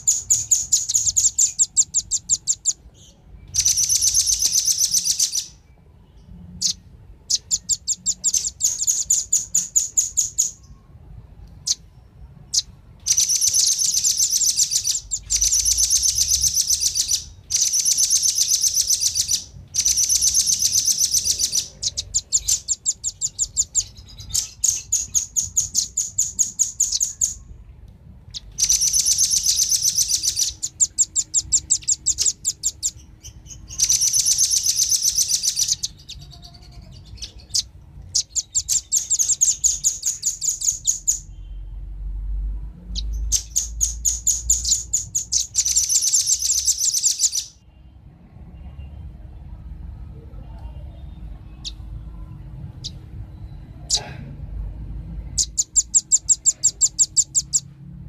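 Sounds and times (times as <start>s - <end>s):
birds chattering trills: 0.0s - 10.8s, 11.6s - 27.5s, 28.3s - 41.6s, 52.8s - 54.2s, 55.4s - 57.7s.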